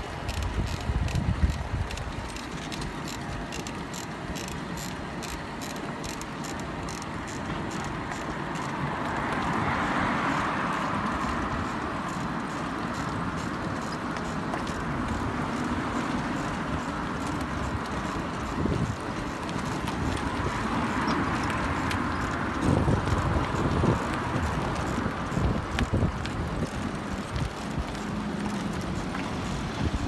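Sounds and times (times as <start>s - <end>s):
wind on microphone: 0.0s - 3.5s, 17.4s - 28.0s, 28.7s - 30.0s
light clicking and rattling: 0.0s - 9.7s
tyres rolling on asphalt: 0.0s - 30.0s.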